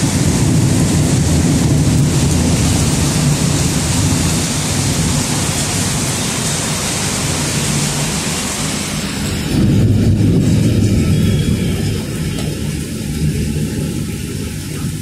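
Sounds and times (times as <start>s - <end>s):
heavy rain pouring: 0.0s - 15.0s
low rumble: 9.2s - 15.0s.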